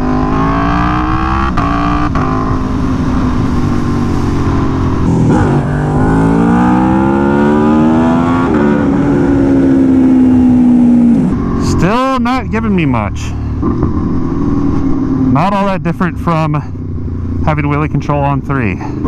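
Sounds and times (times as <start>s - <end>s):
motorcycle engine accelerating hard: 0.0s - 17.6s.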